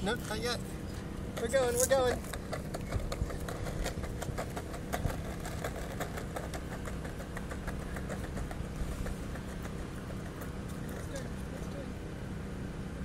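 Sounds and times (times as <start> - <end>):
skateboard wheels rumbling on stone: 1.3 - 11.3
wheel clicks over joints: 1.4 - 11.2.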